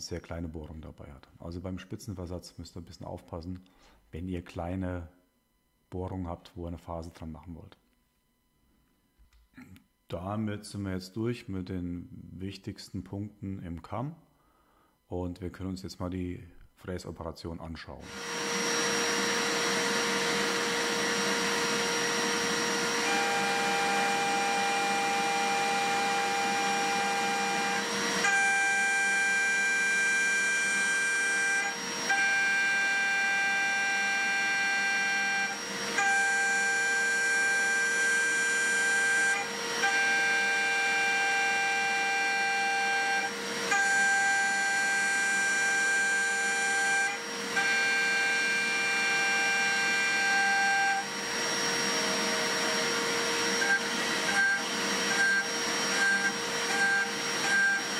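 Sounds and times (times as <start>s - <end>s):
milling spindle whine: 18.0s - 57.9s.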